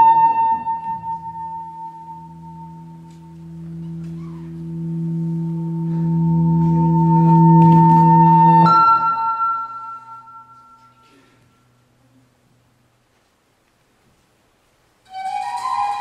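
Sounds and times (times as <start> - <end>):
high bell-like tone: 0.0 - 11.1
low drone: 0.0 - 11.4.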